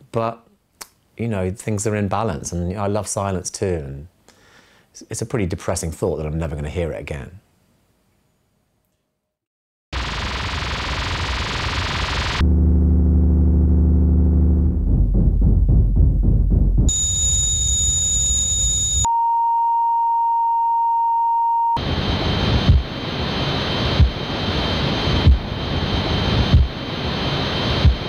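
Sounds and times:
high-pitched ringing tone: 10.0s - 12.4s, 16.9s - 28.0s
low buzzing hum: 10.0s - 19.1s, 21.8s - 28.0s
rumble: 10.0s - 19.1s, 21.8s - 28.0s
sharp thumps: 14.6s - 19.0s
steady pure beep-like tone: 16.9s - 28.0s.

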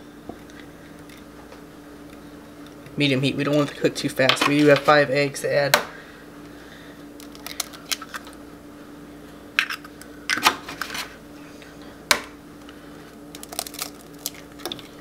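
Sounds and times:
eggshells cracking: 7.2s - 8.4s, 13.3s - 15.0s.

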